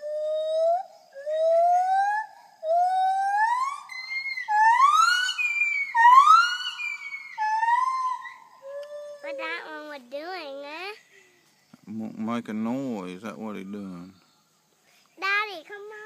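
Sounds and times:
monkey whooping calls: 0:00.0 - 0:09.3.

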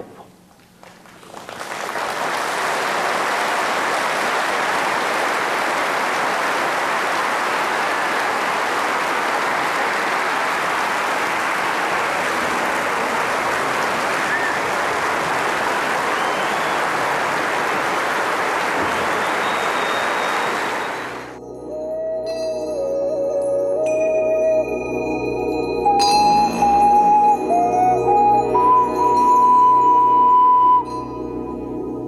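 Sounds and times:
large audience applauding: 0:00.6 - 0:21.4.

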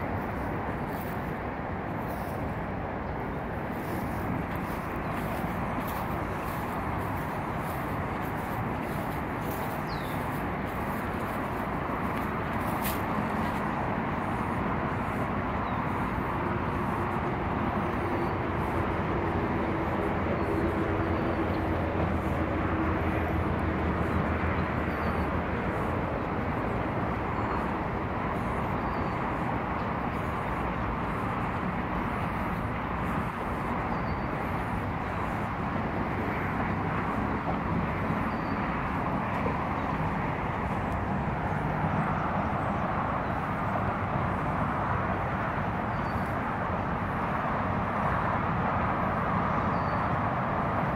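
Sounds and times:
footsteps on asphalt: 0:00.0 - 0:42.0
distant traffic hum: 0:00.0 - 0:50.9
low engine drone: 0:00.0 - 0:50.9
bird chirping: 0:03.8 - 0:11.3, 0:28.4 - 0:29.4, 0:38.1 - 0:38.6.

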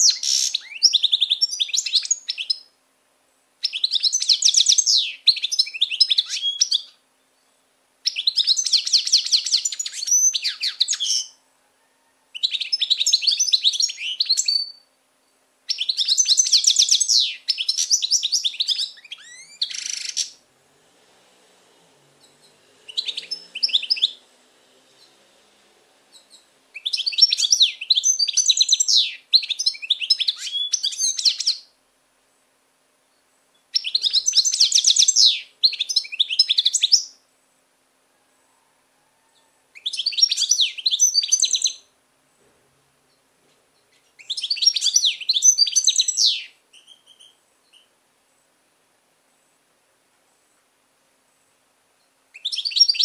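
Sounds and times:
goldfinch twittering song: 0:26.1 - 0:31.7, 0:33.6 - 0:37.2, 0:39.8 - 0:41.9, 0:43.8 - 0:47.9, 0:52.4 - 0:53.0.

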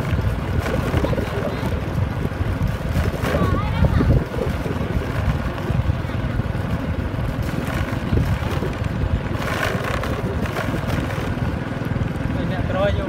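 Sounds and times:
motorbike running: 0:00.0 - 0:13.0
wind buffeting microphone: 0:00.0 - 0:13.0.

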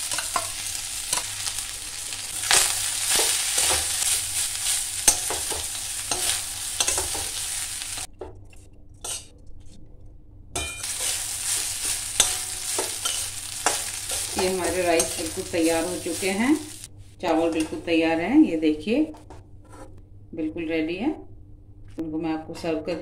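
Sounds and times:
food sizzling in a pan: 0:00.0 - 0:08.1, 0:10.8 - 0:16.9
metal spatula scraping a pan: 0:00.0 - 0:08.1, 0:09.0 - 0:09.3, 0:10.6 - 0:16.8, 0:19.6 - 0:20.0.

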